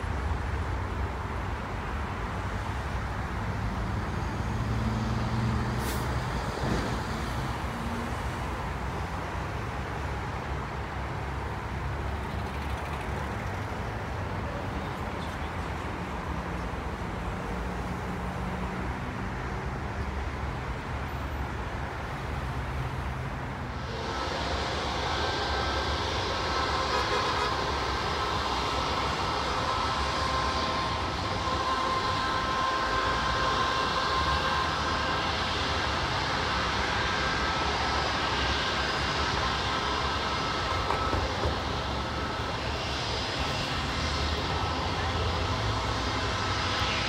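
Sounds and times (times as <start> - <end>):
highway traffic: 0.0 - 47.0
short hiss: 5.8 - 6.2.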